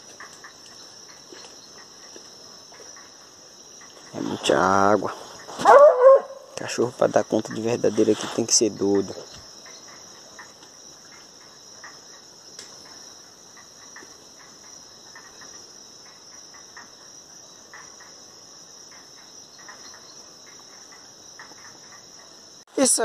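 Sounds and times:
night insects chorus: 0:00.0 - 0:23.0
faint light clicks and crackles: 0:12.6 - 0:13.0.

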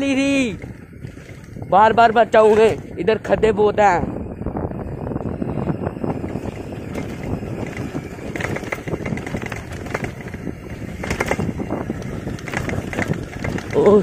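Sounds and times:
bicycle clattering and rattling: 0:00.0 - 0:14.0
tyre noise: 0:05.6 - 0:14.0.

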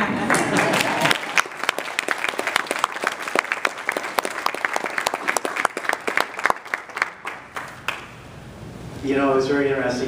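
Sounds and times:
audience applauding: 0:00.0 - 0:08.2
close hand claps: 0:00.2 - 0:08.1.

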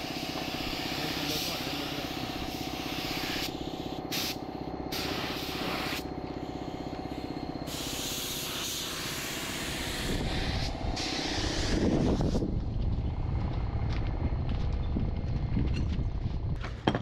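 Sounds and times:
spray gun hissing: 0:00.0 - 0:12.4
steady motor hum: 0:00.0 - 0:17.0.

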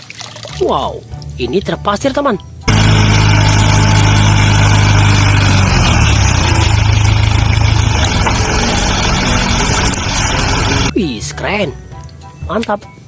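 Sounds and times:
diesel truck engine running: 0:02.6 - 0:10.9.

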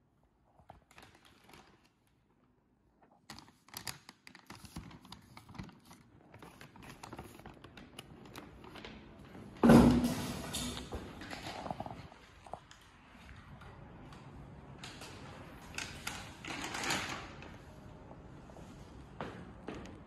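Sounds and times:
paper bag rustling: 0:03.1 - 0:09.3.

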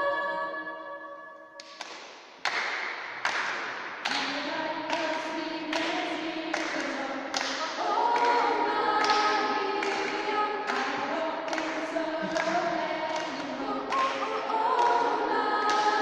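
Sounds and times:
choir singing in parts: 0:04.1 - 0:16.0
sharp taps keeping a beat: 0:08.2 - 0:16.0.

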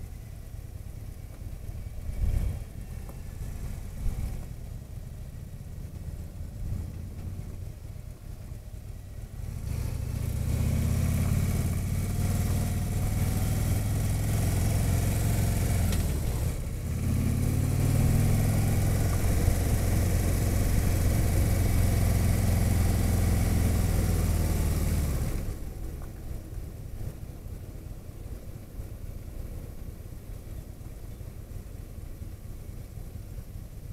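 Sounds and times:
motorcycle engine accelerating: 0:00.9 - 0:26.0.

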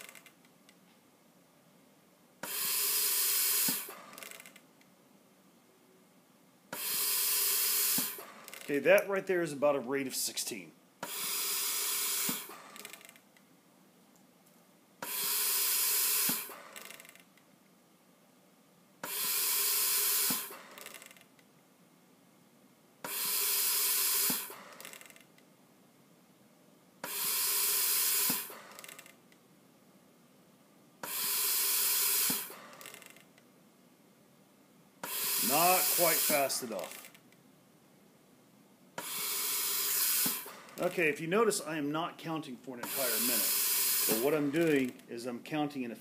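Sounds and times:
respirator gas hissing: 0:02.4 - 0:04.4, 0:06.7 - 0:08.8, 0:11.0 - 0:13.0, 0:15.0 - 0:17.0, 0:19.0 - 0:21.0, 0:23.0 - 0:25.1, 0:27.0 - 0:29.1, 0:31.0 - 0:33.1, 0:35.0 - 0:37.1, 0:39.0 - 0:41.6, 0:42.8 - 0:45.0
faint respirator puff: 0:02.4 - 0:04.5, 0:06.7 - 0:08.7, 0:11.0 - 0:13.1, 0:15.0 - 0:17.2, 0:19.0 - 0:21.1, 0:23.0 - 0:25.1, 0:27.0 - 0:29.1, 0:31.0 - 0:33.2, 0:35.0 - 0:37.2, 0:39.0 - 0:41.0, 0:42.8 - 0:44.9.

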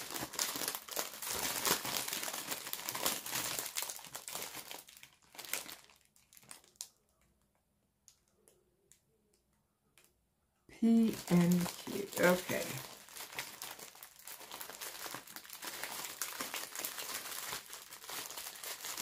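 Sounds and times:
plastic bag crinkling: 0:00.0 - 0:07.0, 0:10.8 - 0:19.0.

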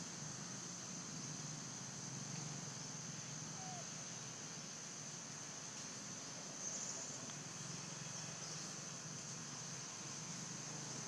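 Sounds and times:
faint call: 0:03.5 - 0:04.0.

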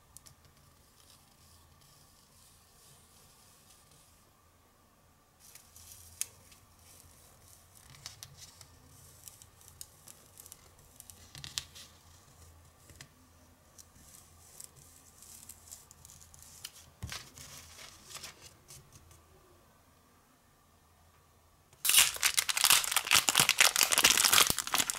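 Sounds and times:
paper rustling and crinkling: 0:14.6 - 0:18.8, 0:21.8 - 0:24.9.

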